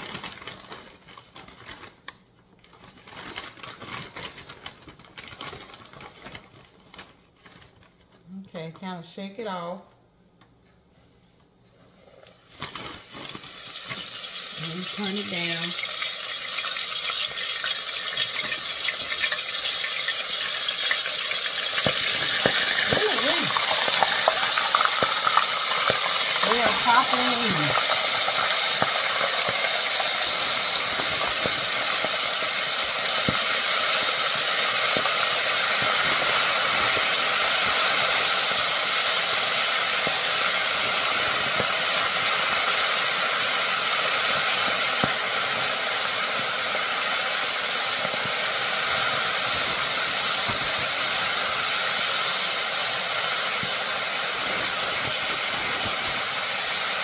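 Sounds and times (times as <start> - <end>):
deep-frying sizzle with pops: 0.0 - 0.9, 12.5 - 57.0
person talking: 14.6 - 15.8, 22.9 - 23.6, 26.4 - 27.8.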